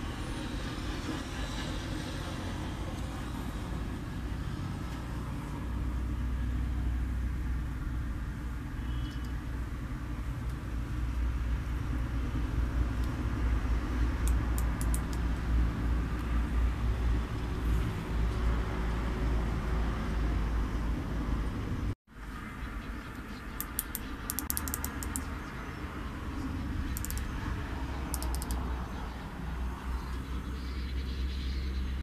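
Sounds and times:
faint clicks: 26.9 - 27.3.

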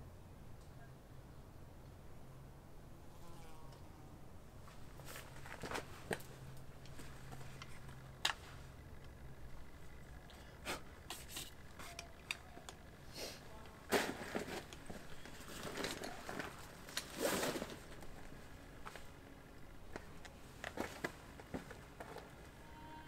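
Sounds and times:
handling clicks and scrapes: 9.8 - 19.1
backpack rustling: 13.9 - 19.2, 19.9 - 22.4.

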